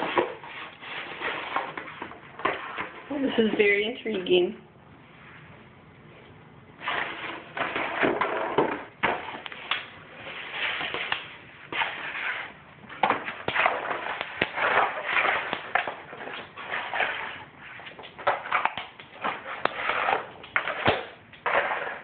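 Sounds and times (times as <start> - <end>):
dog scraping cardboard box on floor: 0.0 - 3.0, 6.8 - 9.4, 10.2 - 22.0.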